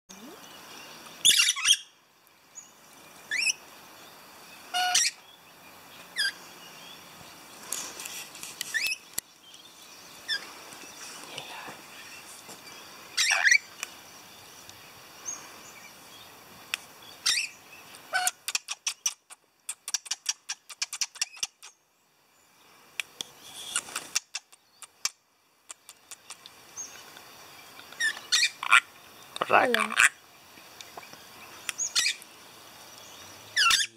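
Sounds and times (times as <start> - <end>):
lorikeets screeching: 1.2 - 2.0, 3.3 - 3.6, 4.6 - 5.2, 6.2 - 6.4, 10.2 - 13.8, 17.1 - 19.2, 27.9 - 30.2, 31.4 - 32.2, 33.2 - 33.9
rapid clicky bird chatter: 13.2 - 14.0, 16.7 - 21.8, 23.0 - 32.3.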